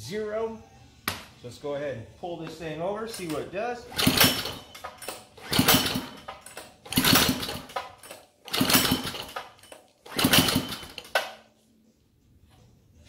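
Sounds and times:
engine recoil starter pulls: 0:03.1 - 0:11.3.

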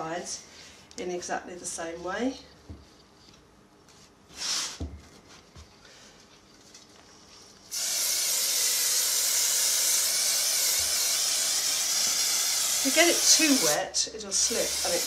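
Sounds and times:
aerosol can spraying hiss: 0:07.7 - 0:15.0.

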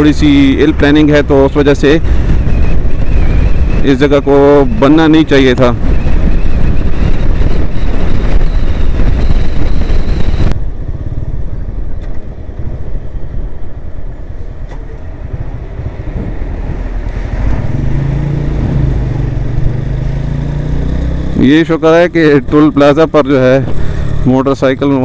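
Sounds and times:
wind and road noise: 0:00.0 - 0:25.0
motorcycle engine: 0:14.8 - 0:24.8.

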